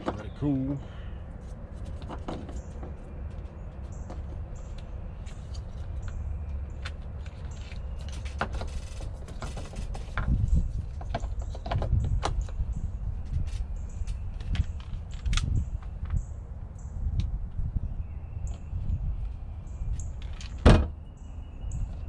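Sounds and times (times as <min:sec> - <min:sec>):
clicks and rattles of handled wires: 0:01.4 - 0:16.2.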